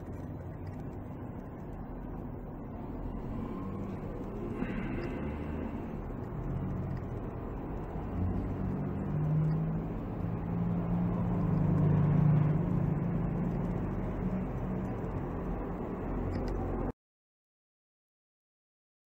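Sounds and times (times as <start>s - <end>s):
low mechanical hum: 0.0s - 16.9s
steady noisy rush: 0.0s - 16.9s.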